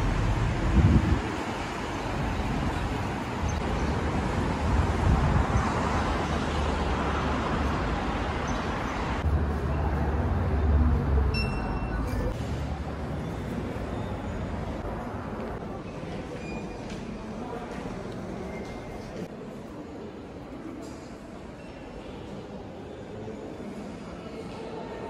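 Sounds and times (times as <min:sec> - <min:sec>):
road traffic noise: 0:00.0 - 0:25.0.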